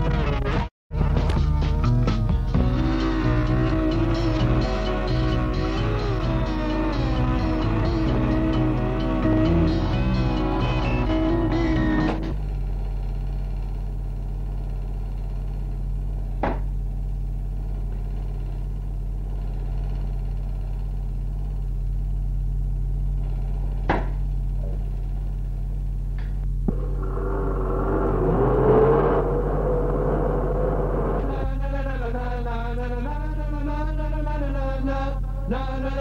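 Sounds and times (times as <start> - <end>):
noisy wavering tone: 26.6 - 32.6.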